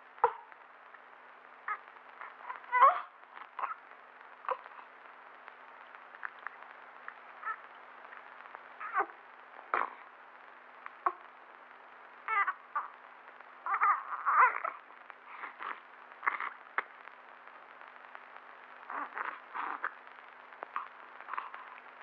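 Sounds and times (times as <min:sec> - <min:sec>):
faint steady hum: 0:00.0 - 0:22.0
baby whimpering and crying: 0:01.7 - 0:03.8, 0:04.5 - 0:04.9, 0:08.8 - 0:09.2, 0:12.3 - 0:13.0, 0:13.6 - 0:14.8, 0:18.9 - 0:19.9.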